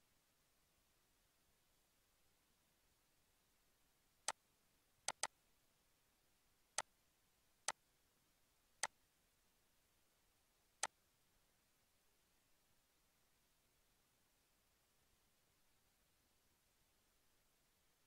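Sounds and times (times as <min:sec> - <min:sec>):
computer mouse clicks: 0:05.1 - 0:05.3.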